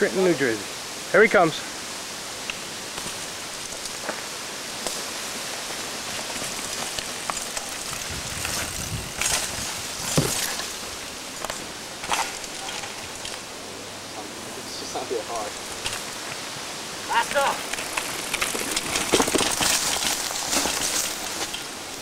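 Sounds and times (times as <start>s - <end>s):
brushing through undergrowth: 2.5s - 13.5s, 15.0s - 22.0s
bike rattling over rock: 6.0s - 13.4s, 17.2s - 21.8s.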